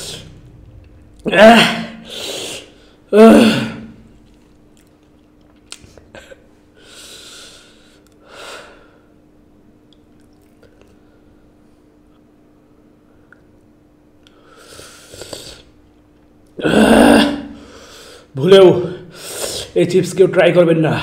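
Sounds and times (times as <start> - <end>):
man crying out in pain: 1.2 - 2.3, 3.1 - 4.0, 16.6 - 17.6.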